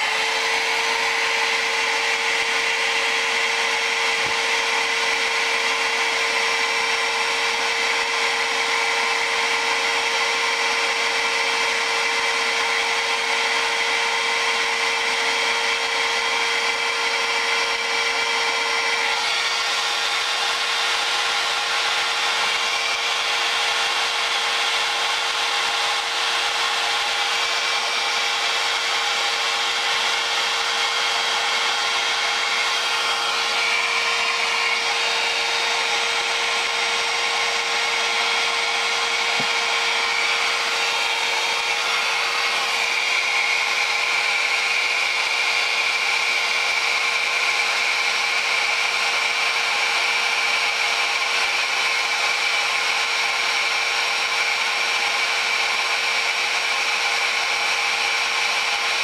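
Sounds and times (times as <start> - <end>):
hot air gun blowing: 0.0 - 59.0.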